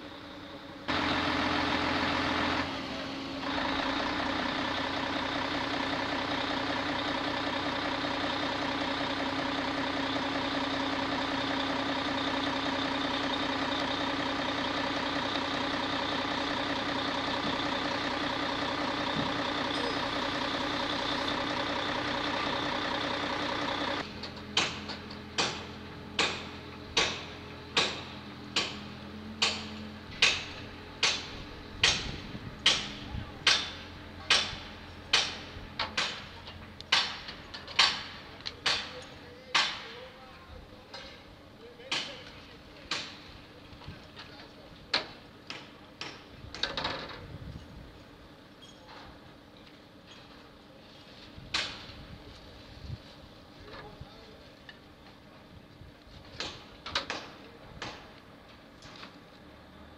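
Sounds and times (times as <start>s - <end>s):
engine running: 0.0s - 59.9s
sharp knocks: 24.6s - 28.8s, 29.4s - 36.3s, 36.9s - 38.9s.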